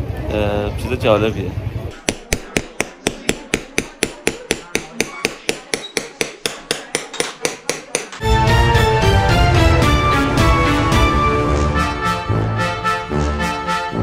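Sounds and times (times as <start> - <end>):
hammer tapping metal punch: 2.0 - 8.2
music: 8.2 - 14.0.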